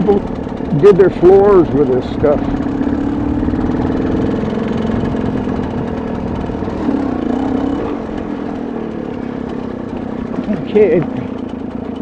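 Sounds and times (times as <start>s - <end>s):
dirt bike engine running: 0.0s - 12.0s.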